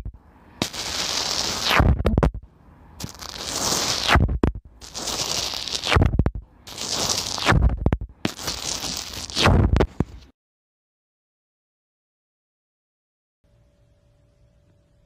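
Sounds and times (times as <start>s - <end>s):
metal tip scraping through sand: 0.6s - 2.0s, 3.0s - 4.2s, 4.8s - 6.1s, 6.7s - 7.6s, 8.2s - 9.4s.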